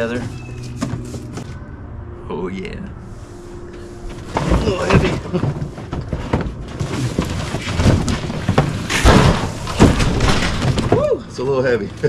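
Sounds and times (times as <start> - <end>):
cardboard box scraping: 0.1 - 1.6, 3.7 - 9.0
knocks and thumps: 4.1 - 11.2.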